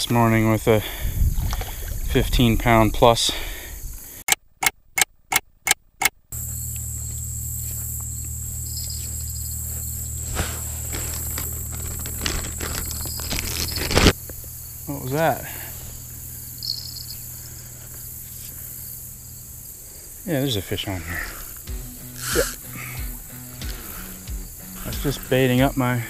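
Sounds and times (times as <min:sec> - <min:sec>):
insects chorus: 0:00.0 - 0:04.2, 0:06.4 - 0:26.0
low hum: 0:06.4 - 0:20.2.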